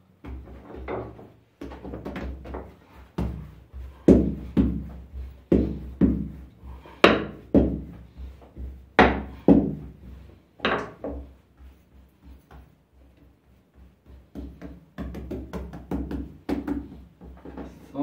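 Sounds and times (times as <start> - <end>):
dough thudding on board: 0.2 - 10.0, 14.2 - 17.4.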